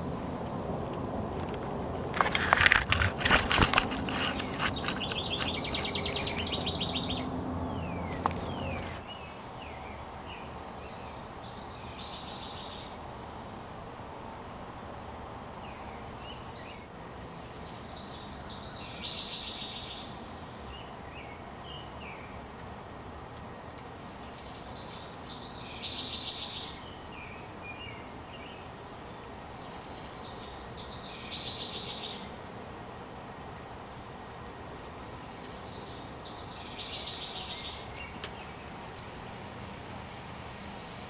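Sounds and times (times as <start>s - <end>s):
songbirds singing: 0.0s - 41.0s
rapid bird trill: 3.3s - 9.0s.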